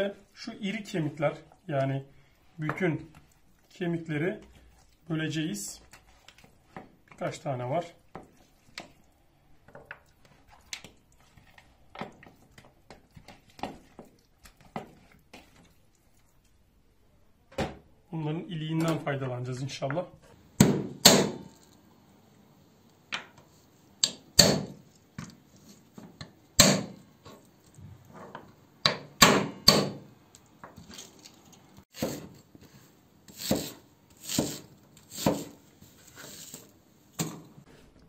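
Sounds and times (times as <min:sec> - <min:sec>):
knife chopping through bones: 0:20.6 - 0:21.4, 0:24.0 - 0:24.8, 0:26.6 - 0:27.0, 0:28.8 - 0:30.0
knife cutting onion: 0:31.9 - 0:37.4.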